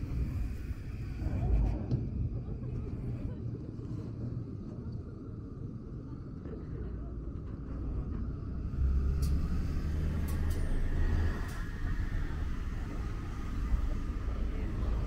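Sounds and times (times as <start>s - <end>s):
vehicle engine rumbling: 6.8s - 15.0s.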